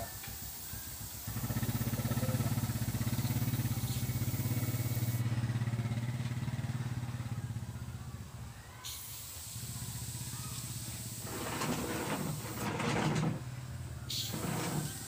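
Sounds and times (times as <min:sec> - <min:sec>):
airbrush hissing: 0:00.0 - 0:05.3, 0:08.8 - 0:12.8, 0:14.1 - 0:15.0
air compressor pulsing hum: 0:00.0 - 0:06.0, 0:08.8 - 0:15.0.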